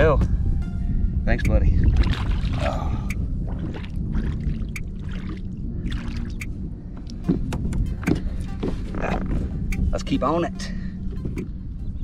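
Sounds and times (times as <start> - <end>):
steady low rumble: 0.0 - 12.0
water dripping against hull: 1.4 - 9.9.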